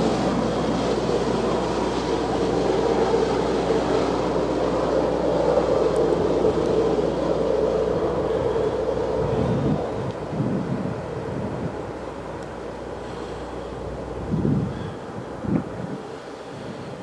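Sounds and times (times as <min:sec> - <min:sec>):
freight train running by: 0:00.0 - 0:17.0
wheels rumbling on rail: 0:00.0 - 0:17.0.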